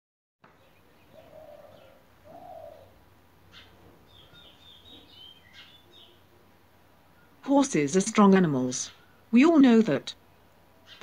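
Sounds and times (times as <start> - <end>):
small birds chirping and whistling: 0.6 - 6.3, 10.8 - 11.0
low hooting coos: 0.6 - 7.4.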